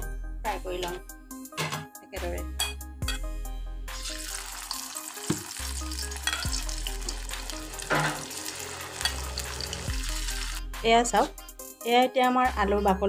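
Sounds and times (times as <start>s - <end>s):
background music with bass: 2.2s - 4.4s, 5.6s - 11.8s
food deep-frying in oil: 3.9s - 10.6s.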